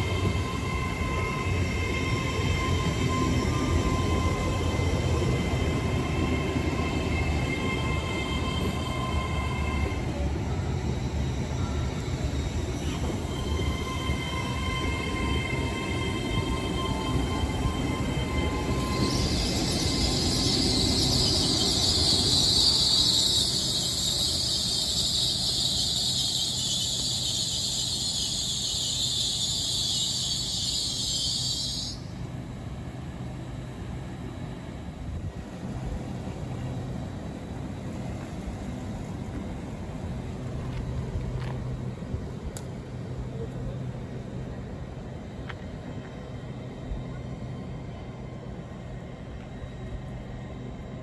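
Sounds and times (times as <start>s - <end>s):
train brake squeal and hiss: 0.0s - 32.4s
low hum from standing train: 0.0s - 51.0s
low train rumble: 0.0s - 51.0s.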